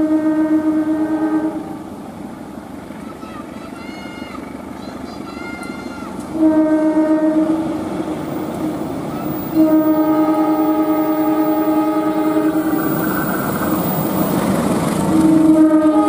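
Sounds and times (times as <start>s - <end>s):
locomotive horn blasts: 0.0s - 1.9s, 6.3s - 8.6s, 9.2s - 14.2s, 15.1s - 16.0s
train rumble: 0.0s - 16.0s.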